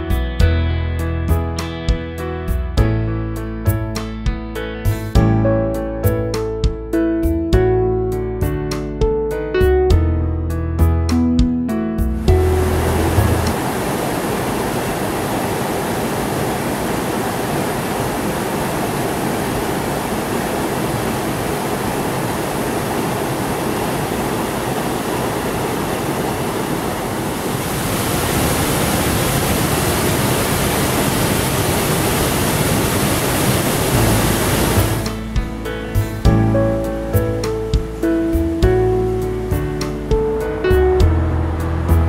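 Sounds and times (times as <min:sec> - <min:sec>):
stream rushing over cascade: 0:12.2 - 0:35.4.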